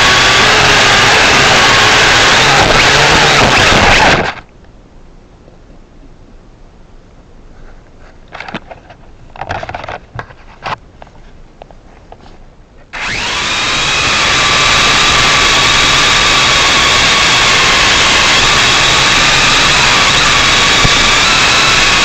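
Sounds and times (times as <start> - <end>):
quadcopter drone propellers whining: 0.0 - 4.4, 13.0 - 22.0.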